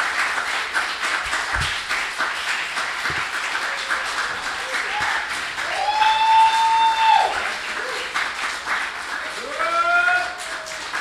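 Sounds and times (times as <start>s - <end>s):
audience applauding: 0.0s - 11.0s
high-pitched whoops: 5.7s - 7.4s.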